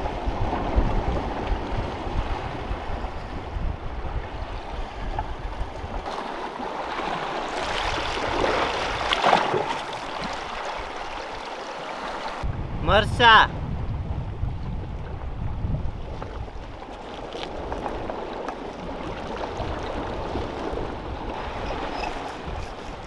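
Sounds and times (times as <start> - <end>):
wind rumbling on microphone: 0.0 - 11.4, 12.1 - 23.0
water lapping against rocks: 4.5 - 12.4, 15.9 - 23.0.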